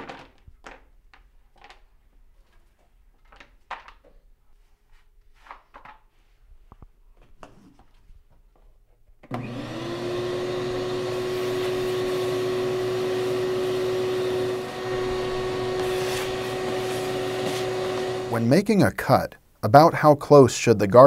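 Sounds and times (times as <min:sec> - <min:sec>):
shop vacuum running: 0:09.3 - 0:18.5.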